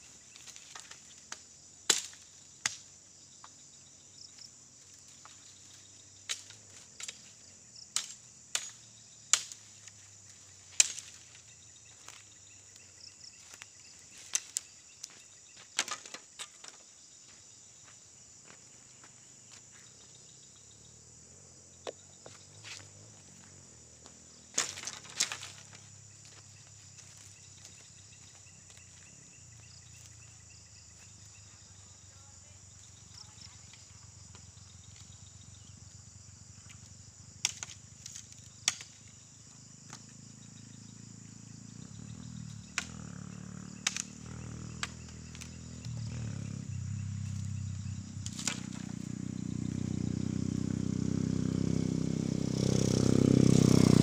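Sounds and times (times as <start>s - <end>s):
high insect chorus: 0.0s - 54.0s
dry bamboo stalks cracking: 0.4s - 2.9s, 6.2s - 7.4s, 8.0s - 10.0s, 10.6s - 12.1s, 14.2s - 15.2s, 15.8s - 16.8s, 24.5s - 26.4s, 37.4s - 39.0s, 42.7s - 43.1s, 43.8s - 46.4s, 48.2s - 49.2s.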